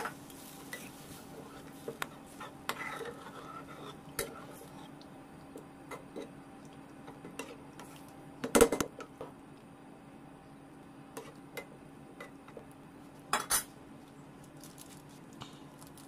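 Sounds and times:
utensils scraping metal wok: 0.7s - 4.9s.

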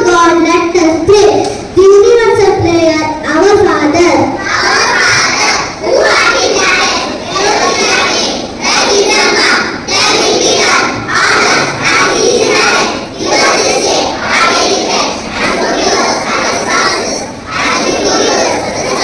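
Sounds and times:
children chanting in unison: 4.2s - 19.0s.

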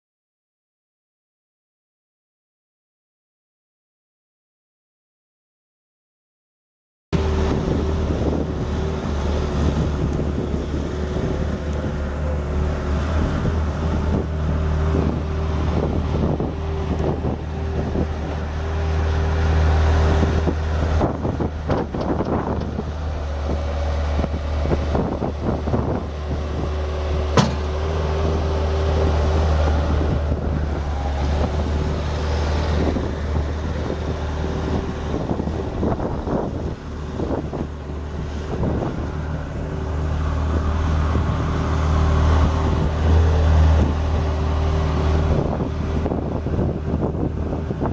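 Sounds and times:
diesel engine running: 7.2s - 47.9s
knocks and rattles: 27.4s - 27.7s.

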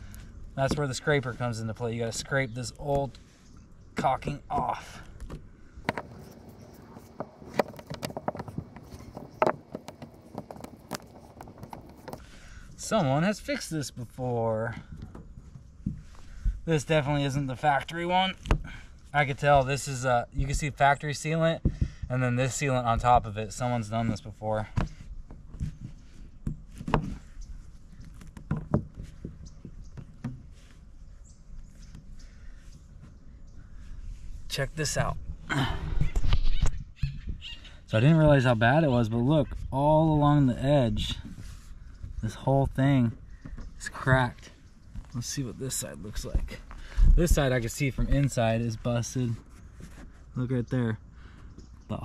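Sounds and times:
faint rustling: 5.0s - 17.6s, 40.7s - 51.9s.

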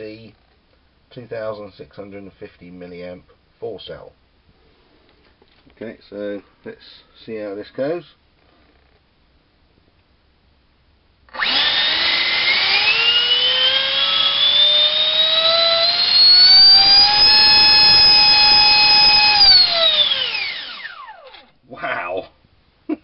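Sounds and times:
electric fan motor whine: 11.3s - 21.6s.

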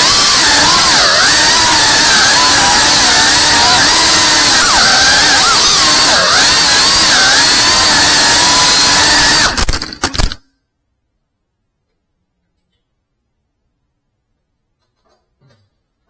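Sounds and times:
drone motors whining: 0.0s - 9.7s.

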